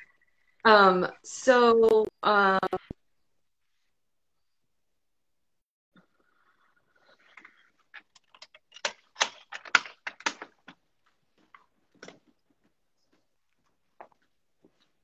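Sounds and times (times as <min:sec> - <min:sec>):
irregular clicks and taps: 0:07.4 - 0:14.3.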